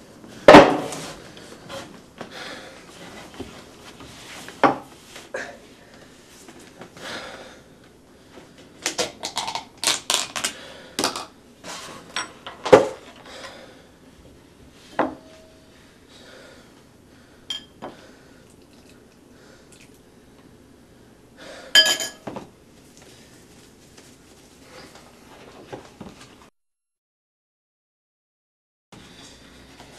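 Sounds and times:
spoons clinking against bowls: 17.5 - 17.8, 21.8 - 22.3.

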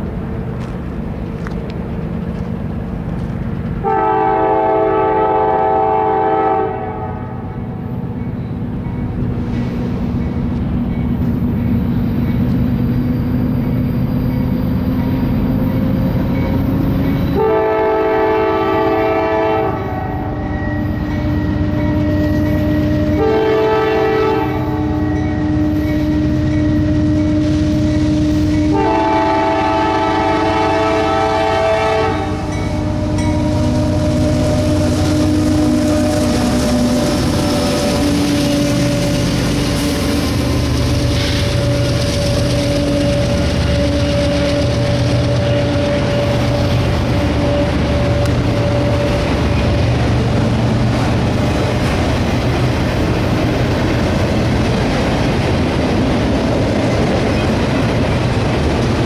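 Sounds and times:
diesel locomotive engine rumble: 0.0 - 59.0
locomotive air horn blasts: 3.8 - 7.4, 17.4 - 39.6, 41.4 - 49.3.

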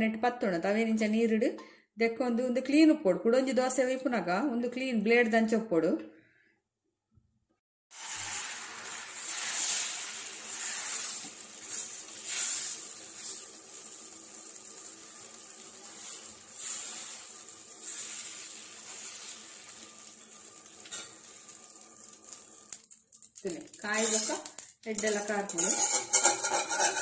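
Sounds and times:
batter sizzling on hot pan: 7.9 - 27.0.

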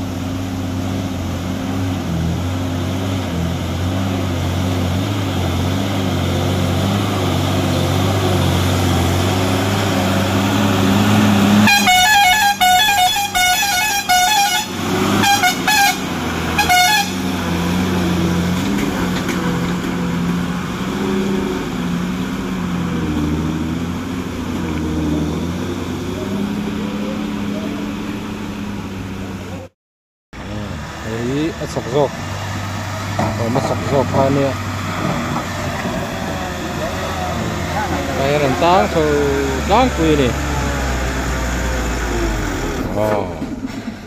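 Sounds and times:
vehicle engine running: 0.0 - 29.7, 30.4 - 44.0
horn honking: 9.6 - 18.1.

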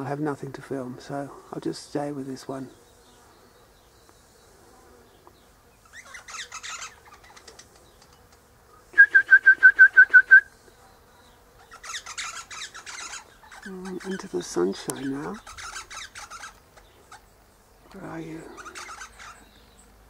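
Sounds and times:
parrot scratchy call: 5.8 - 7.8, 11.6 - 14.3, 15.0 - 17.2, 18.5 - 19.5.

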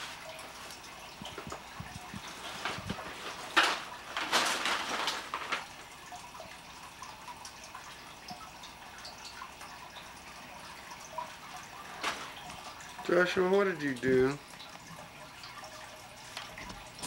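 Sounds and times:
paper crinkling and rustling: 0.0 - 6.0, 11.8 - 12.7.

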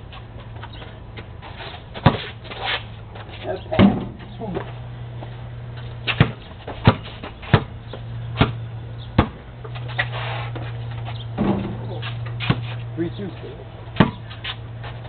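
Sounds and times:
basketball bouncing on concrete: 0.4 - 2.4, 5.3 - 9.9, 11.2 - 12.9, 13.9 - 15.0.

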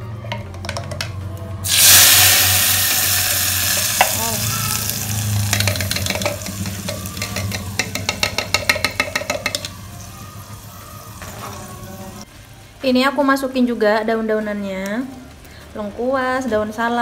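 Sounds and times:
paste sizzling in hot oil: 1.6 - 8.2.

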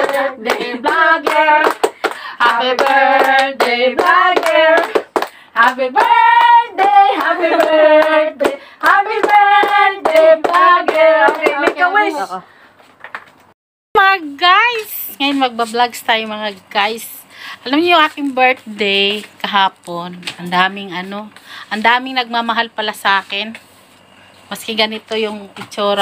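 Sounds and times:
women singing together: 0.0 - 12.4.

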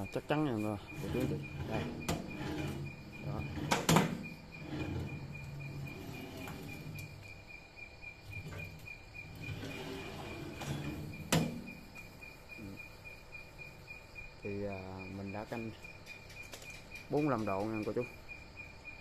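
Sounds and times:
insect chirping: 0.0 - 19.0
rolling rumble on rail: 0.7 - 7.6, 8.2 - 12.2.

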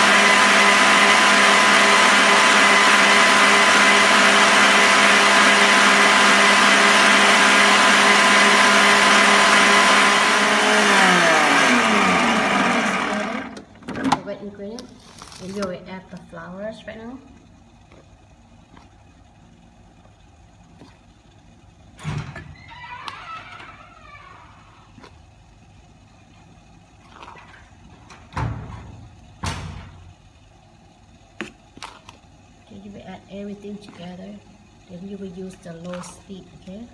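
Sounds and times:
stand mixer motor humming: 0.0 - 13.6.

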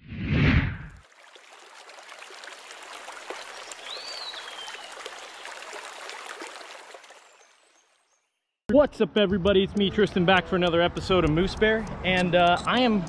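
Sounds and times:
trickling water-like rushing: 0.9 - 7.9.

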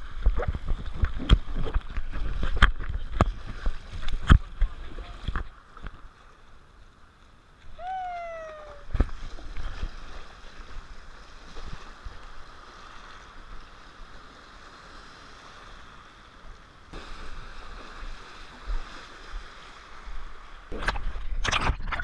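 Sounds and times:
wind on microphone: 0.0 - 5.5, 7.7 - 12.3
surf washing and sloshing: 0.0 - 22.0
high held cry: 7.8 - 8.9.

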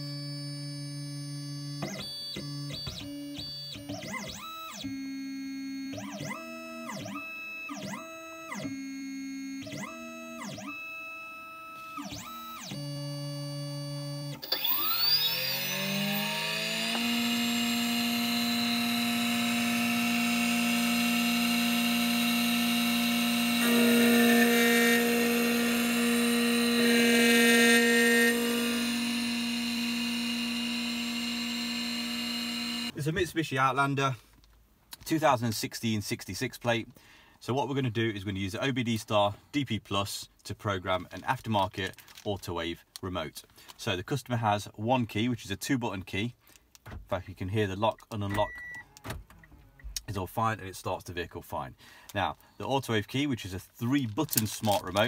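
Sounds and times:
key cutting machine whine: 0.0 - 32.9.

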